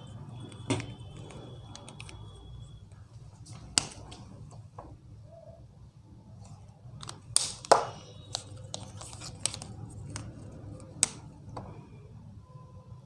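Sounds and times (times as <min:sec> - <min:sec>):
marker clicks and taps: 0:07.0 - 0:11.7.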